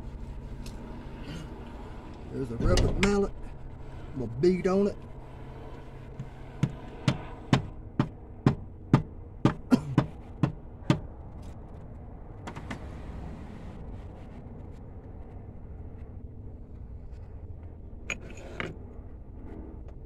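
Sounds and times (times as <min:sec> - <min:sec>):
rubber mallet knocking on metal: 0:06.6 - 0:11.0.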